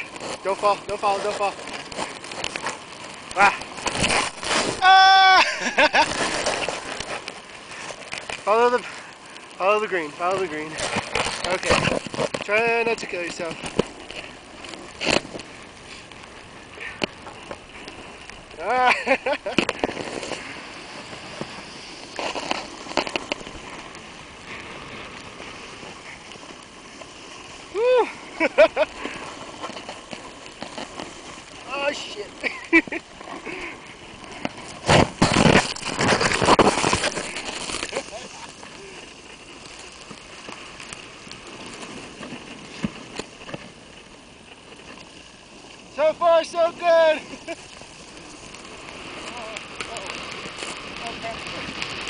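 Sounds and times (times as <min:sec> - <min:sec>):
snowboard scraping through snow: 0:00.0 - 0:52.0
snowboard sharp knocks: 0:34.4 - 0:38.0.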